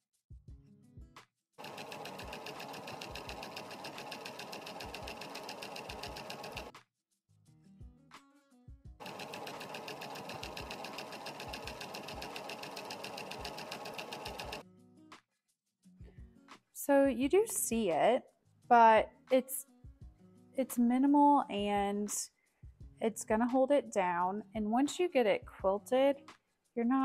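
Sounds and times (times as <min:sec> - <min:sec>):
sewing machine stitching: 0:01.6 - 0:06.7, 0:09.0 - 0:14.6.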